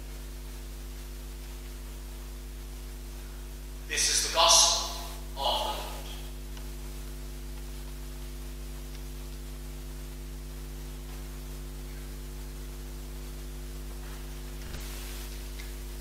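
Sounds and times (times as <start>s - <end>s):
electrical mains hum: 0.0s - 16.0s
sound system hiss: 0.0s - 16.0s.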